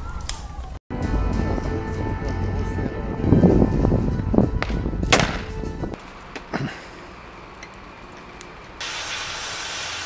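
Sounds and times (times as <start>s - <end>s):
gas torch hissing: 8.8s - 10.0s.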